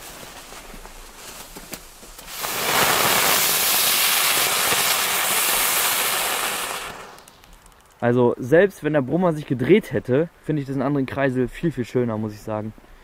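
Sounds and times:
fireworks hissing sparks: 0.0s - 8.0s.

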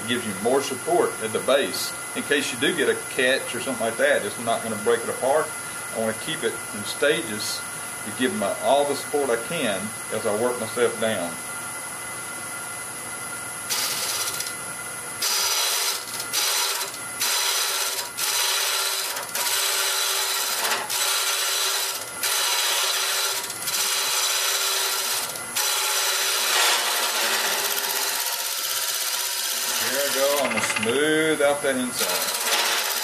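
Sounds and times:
lathe cutter scraping wood: 13.7s - 14.5s, 15.2s - 31.1s, 31.7s - 33.0s.

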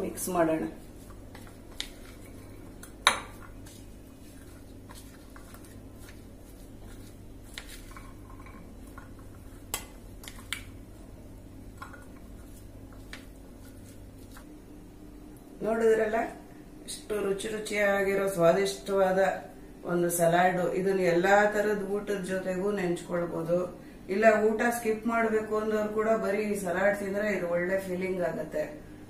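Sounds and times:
steady low hum: 0.0s - 29.0s
spatula stirring in a bowl: 0.4s - 10.7s, 11.6s - 14.5s.

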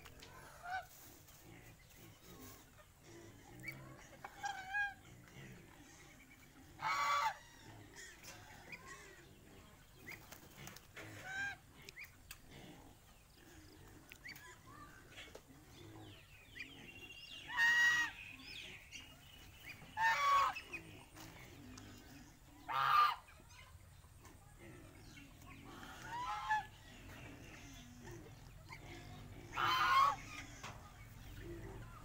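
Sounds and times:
goose honking: 6.8s - 7.4s, 17.5s - 18.2s, 20.0s - 20.7s, 22.6s - 23.3s, 26.0s - 26.8s, 29.5s - 30.8s.

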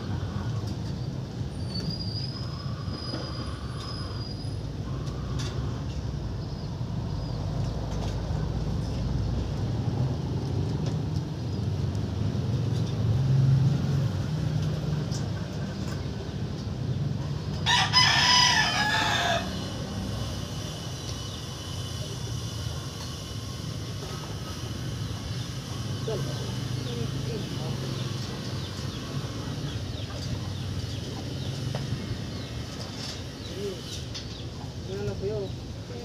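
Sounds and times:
rooster crowing: 17.6s - 20.1s.

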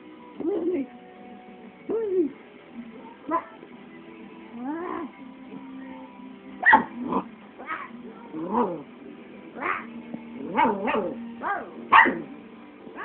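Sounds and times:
puppy barking and yowling: 6.6s - 8.8s, 9.6s - 12.3s.

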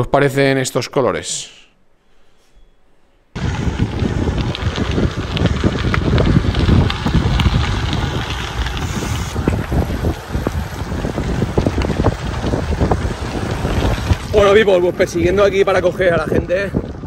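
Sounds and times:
wind buffeting microphone: 3.4s - 17.0s.

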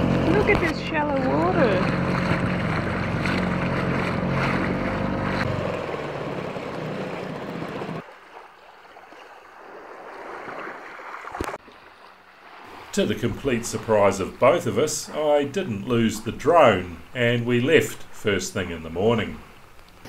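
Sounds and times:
outboard motor running: 0.0s - 8.1s
water rushing along hull: 0.0s - 20.0s
wind and surf: 0.0s - 20.0s.

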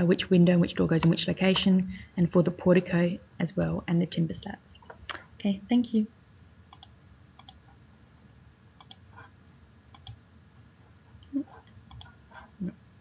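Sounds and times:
computer mouse clicking: 6.7s - 7.6s, 8.8s - 9.0s, 9.9s - 10.2s, 11.8s - 12.2s.

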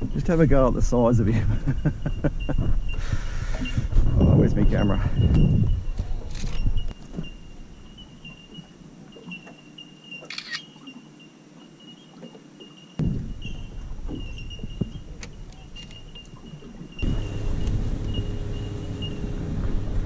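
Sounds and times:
wind rumble on microphone: 0.0s - 8.6s, 13.0s - 20.0s
handling noises on boat deck: 1.5s - 20.0s.

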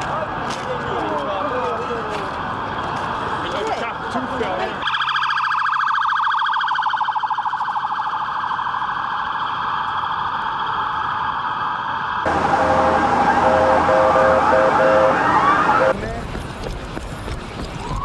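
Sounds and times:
siren warbling yelp: 4.8s - 16.0s
sirens wailing: 4.8s - 16.0s.

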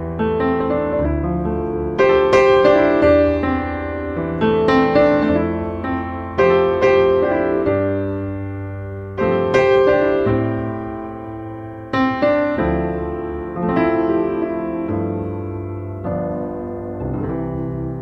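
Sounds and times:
slow piano chords: 0.0s - 18.0s.

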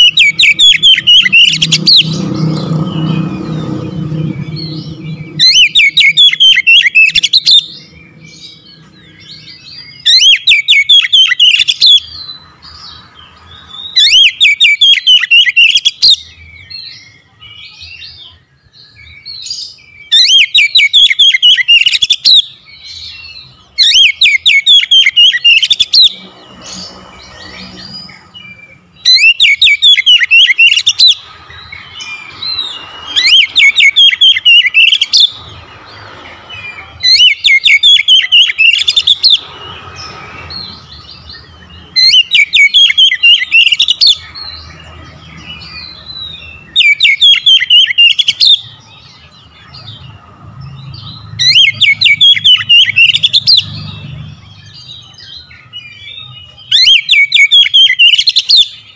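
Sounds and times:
bird singing fast high notes: 0.0s - 12.2s.

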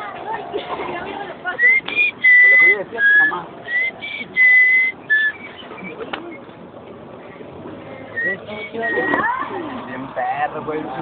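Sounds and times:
person whistling a tune: 1.6s - 6.0s, 8.1s - 9.2s.

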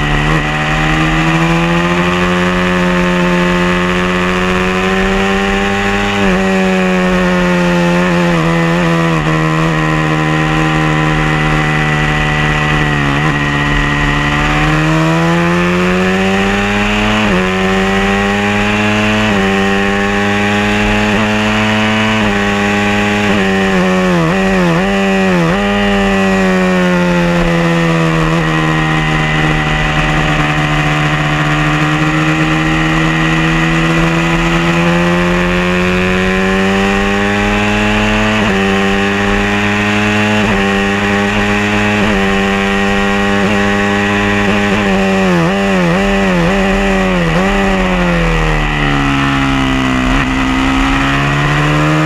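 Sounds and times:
race motorcycle engine at high revs: 0.0s - 52.0s.

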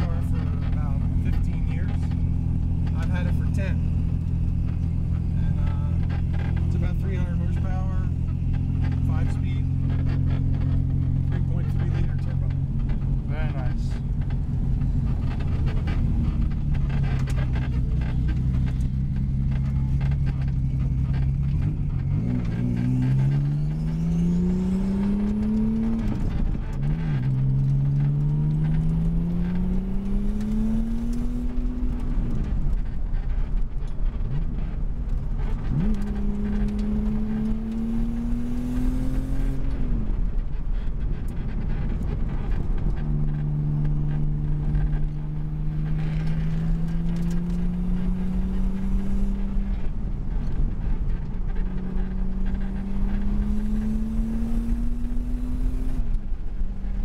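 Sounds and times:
car engine accelerating: 0.0s - 57.0s.

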